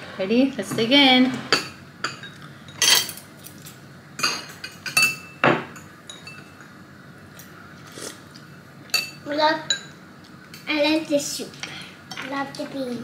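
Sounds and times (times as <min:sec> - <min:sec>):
cutlery clinking on ceramic plates: 0:01.5 - 0:06.7.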